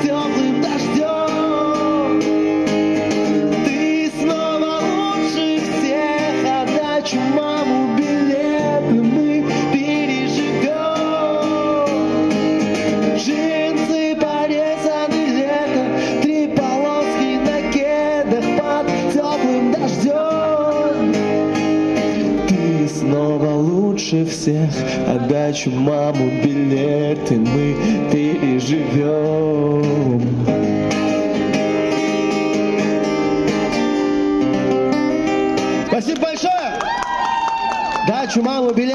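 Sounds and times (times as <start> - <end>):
man singing: 0.0 - 30.6
acoustic guitar strumming: 0.0 - 36.2.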